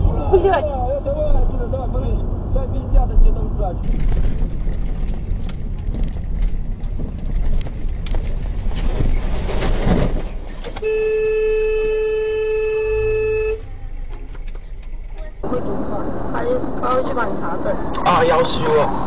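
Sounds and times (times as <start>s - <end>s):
car road and engine noise: 0.0s - 19.0s
truck passing alongside: 3.5s - 19.0s
vehicle horn held: 10.8s - 13.7s.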